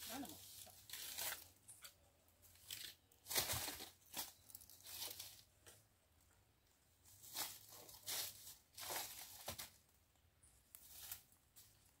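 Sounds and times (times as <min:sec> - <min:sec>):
footsteps crunching on dry leaves: 0:03.2 - 0:05.4, 0:07.1 - 0:09.8.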